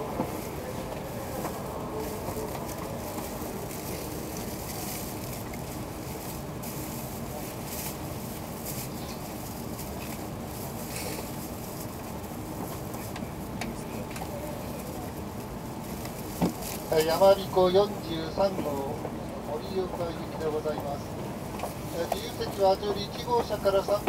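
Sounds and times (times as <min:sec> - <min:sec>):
train cabin hum: 0:00.0 - 0:24.0.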